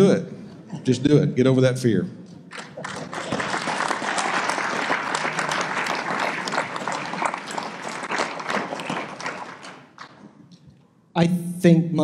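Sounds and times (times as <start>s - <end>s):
audience applauding: 2.5s - 10.2s.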